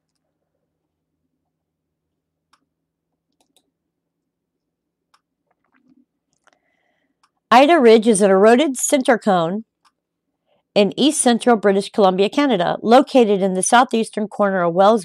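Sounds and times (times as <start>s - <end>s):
computer mouse clicks: 3.3s - 3.7s.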